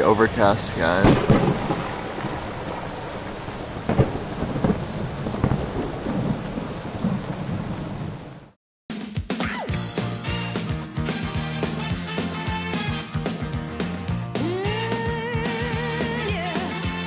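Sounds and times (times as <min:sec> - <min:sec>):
steady rain: 0:00.0 - 0:08.6
thunder clap: 0:00.0 - 0:08.6
rolling thunder: 0:00.2 - 0:08.6
music: 0:08.9 - 0:17.0.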